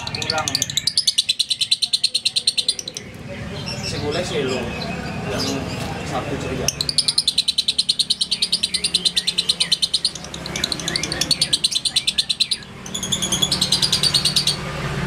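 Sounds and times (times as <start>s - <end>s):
lovebird chattering: 0.0s - 5.9s, 6.5s - 14.7s.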